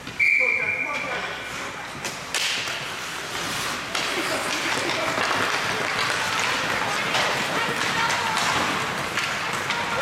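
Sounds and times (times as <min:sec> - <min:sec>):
hockey sticks clacking: 0:01.0 - 0:10.0
skate blades scraping ice: 0:02.2 - 0:10.0.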